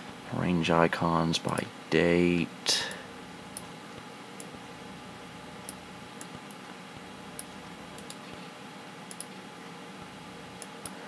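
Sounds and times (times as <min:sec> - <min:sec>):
computer humming: 0:00.0 - 0:11.0
faint clicks: 0:09.1 - 0:09.4.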